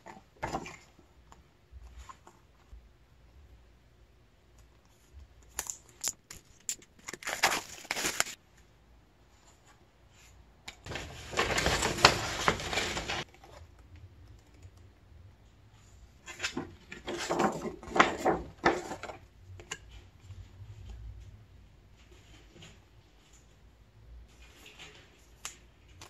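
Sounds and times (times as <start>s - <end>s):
paper rustling: 5.6s - 8.4s, 9.4s - 13.6s, 16.2s - 19.2s.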